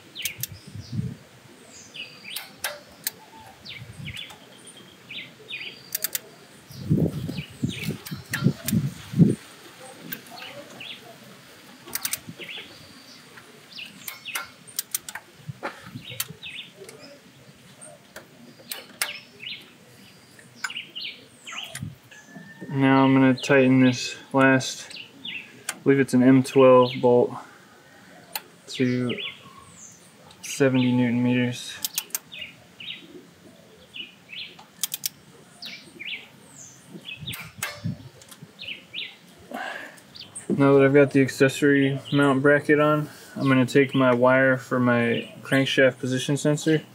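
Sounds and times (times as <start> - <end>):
birds chirping: 0.0 - 46.9
torque wrench clicking: 5.9 - 6.2, 11.9 - 12.2, 14.1 - 15.2, 31.8 - 32.2, 34.8 - 35.2.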